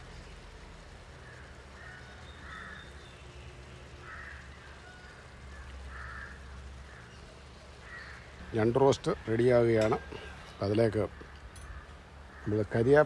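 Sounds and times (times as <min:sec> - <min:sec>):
low steady rumble: 0:00.0 - 0:13.0
crow cawing: 0:01.2 - 0:03.1, 0:04.0 - 0:08.7, 0:09.8 - 0:13.0.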